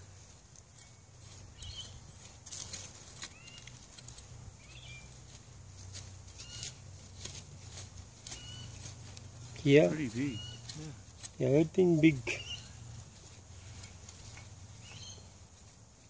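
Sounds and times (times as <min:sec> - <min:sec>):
faint bird chirps: 0:00.9 - 0:02.1, 0:08.3 - 0:08.8, 0:09.9 - 0:11.0, 0:12.3 - 0:12.9, 0:14.7 - 0:15.4.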